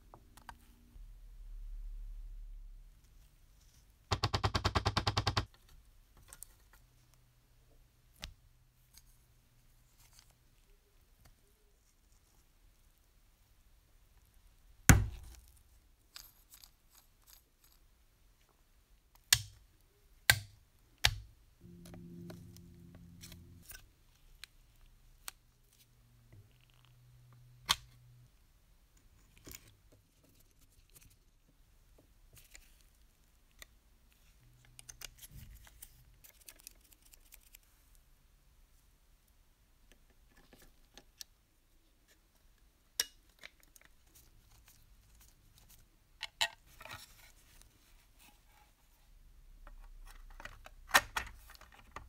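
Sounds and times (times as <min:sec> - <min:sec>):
low hum: 0:21.6 - 0:24.1.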